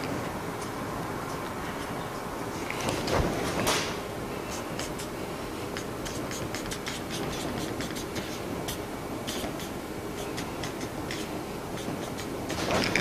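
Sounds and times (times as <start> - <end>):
steady background hiss: 0.0 - 13.0
marker writing on whiteboard: 4.5 - 5.1, 5.8 - 13.0.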